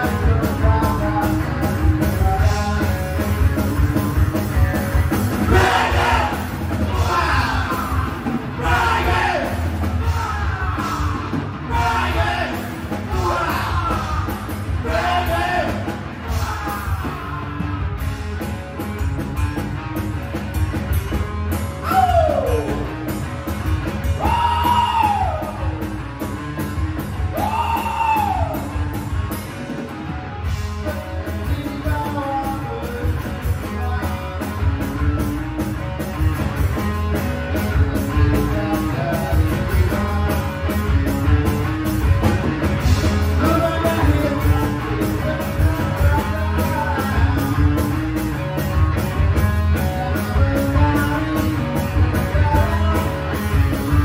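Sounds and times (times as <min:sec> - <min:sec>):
live rock band playing: 0:00.0 - 0:54.0
person singing and yelling: 0:05.5 - 0:17.8.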